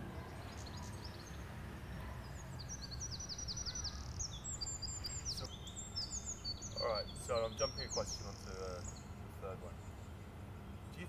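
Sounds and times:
songbirds singing: 0:00.0 - 0:11.0.

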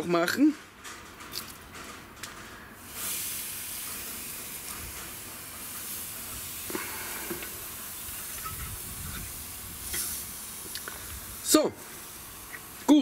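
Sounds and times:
steaks sizzling on a grill: 0:02.8 - 0:13.0.

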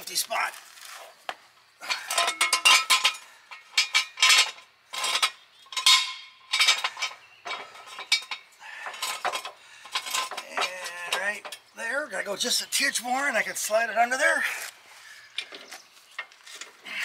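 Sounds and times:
jack stand clanking and scraping: 0:01.8 - 0:11.7.

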